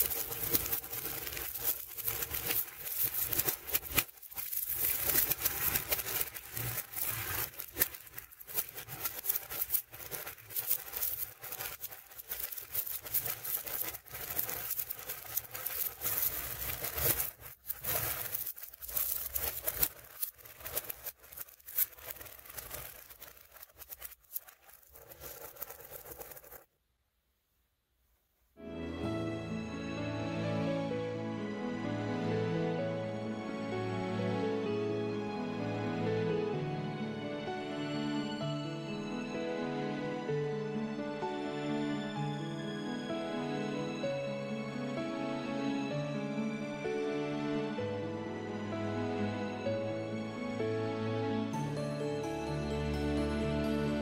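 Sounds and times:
magnet balls clicking and rattling: 0.0 - 26.7.

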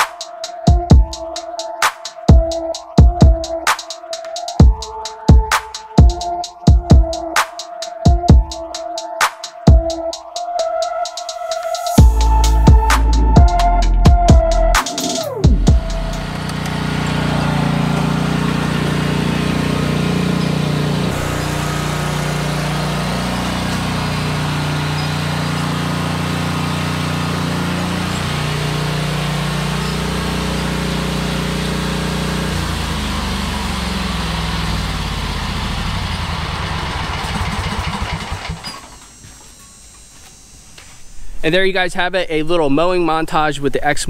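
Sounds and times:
lawn mower engine running: 14.8 - 40.5.

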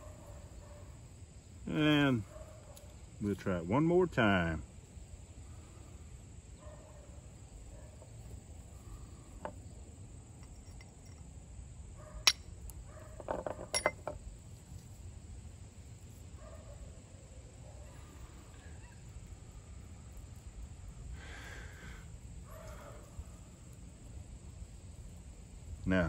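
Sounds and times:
flint striking steel: 12.2 - 14.2.

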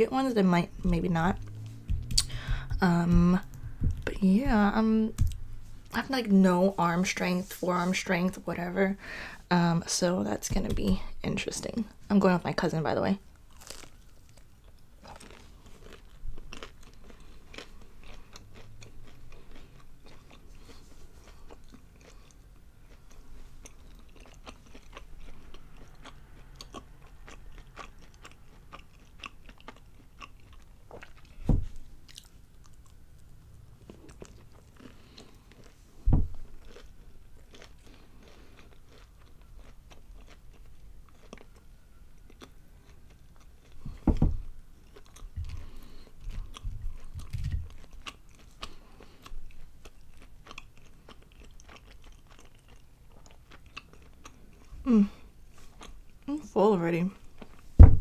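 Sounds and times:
low thumps: 0.9 - 5.6, 36.0 - 36.5, 57.8 - 58.0
chewing crunchy food: 13.3 - 56.3.

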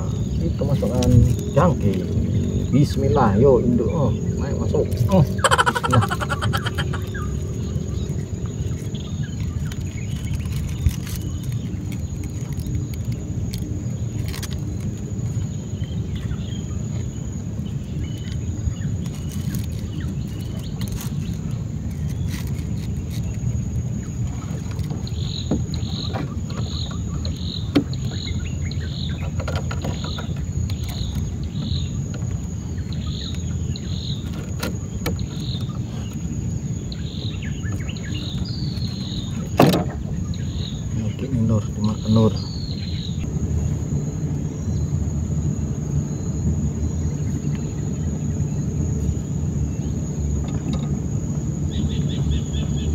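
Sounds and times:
high insect whine: 0.0 - 52.9
river rumble: 4.1 - 12.6.

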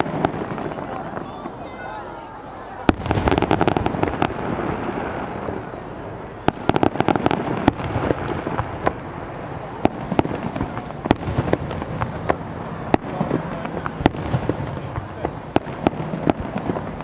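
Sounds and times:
fireworks bursting with sharp bangs: 0.0 - 17.0.

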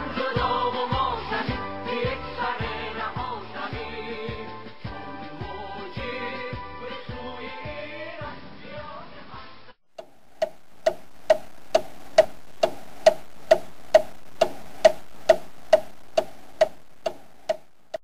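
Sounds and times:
faint background noise: 8.0 - 18.0
clock ticking: 10.0 - 18.0.

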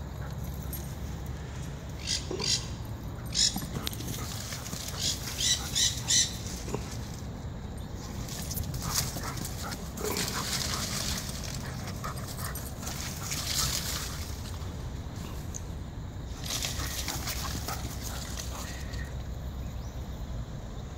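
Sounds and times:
dog paws digging in dirt: 3.3 - 7.3, 7.9 - 15.5, 16.3 - 19.0.

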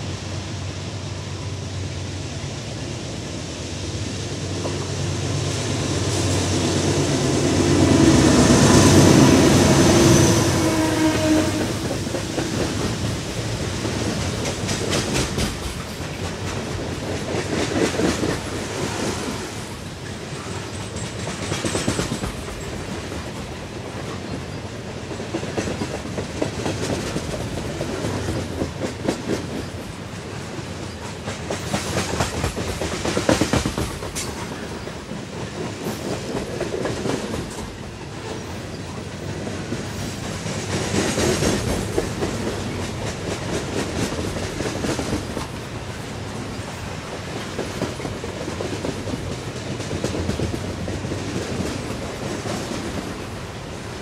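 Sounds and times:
freight train rumbling: 0.0 - 54.0
steel wheels clicking on rails: 11.6 - 54.0.

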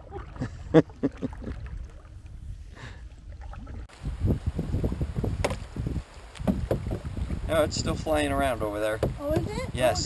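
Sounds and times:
paddle splashing in water: 0.0 - 4.0, 4.7 - 8.0
water sloshing against hull: 0.0 - 10.0
wind on microphone: 0.0 - 10.0.

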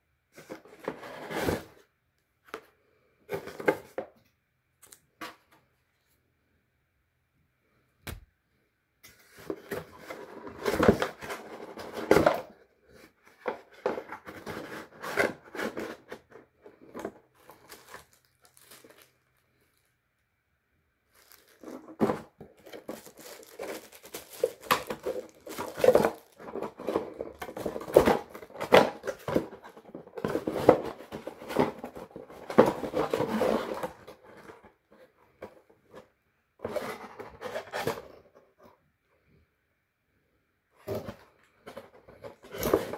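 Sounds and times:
cardboard crinkling and scraping: 0.3 - 1.9, 3.3 - 4.2, 9.1 - 19.8, 21.1 - 38.7, 40.8 - 42.9.

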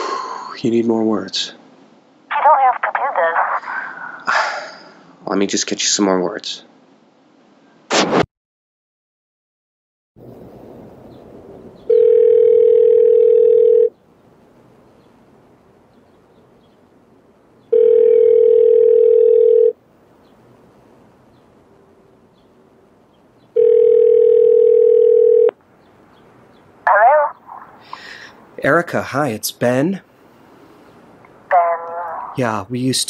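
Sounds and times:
telephone ringback tone: 11.9 - 13.9, 17.7 - 19.8, 23.6 - 25.6.

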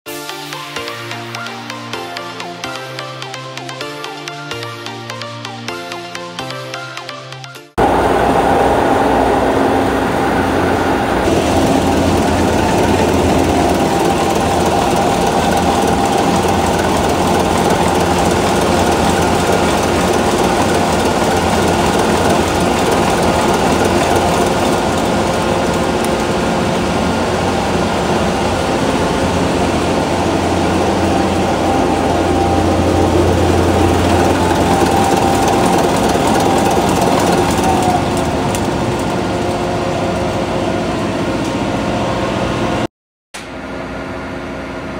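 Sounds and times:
diesel engines running loud: 7.8 - 42.9.

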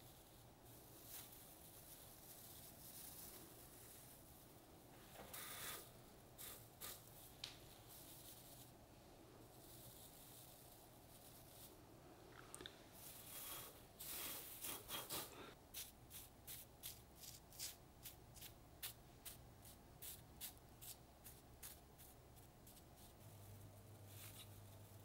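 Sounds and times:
gold leaf crinkling: 0.0 - 8.8
soft brush dabbing: 0.0 - 25.0.

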